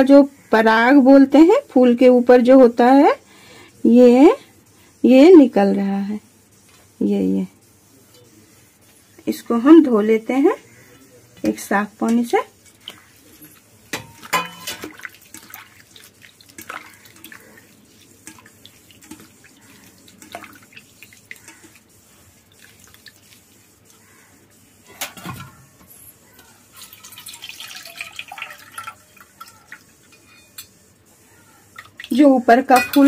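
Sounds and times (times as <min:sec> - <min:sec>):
water poured through strainer: 0:14.2 - 0:21.8, 0:26.7 - 0:29.9
hands swishing in water: 0:14.8 - 0:21.8.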